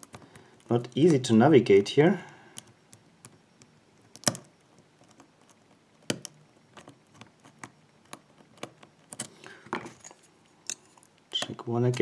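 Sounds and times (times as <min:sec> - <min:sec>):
lock pick clicking on pins: 0:02.5 - 0:09.3.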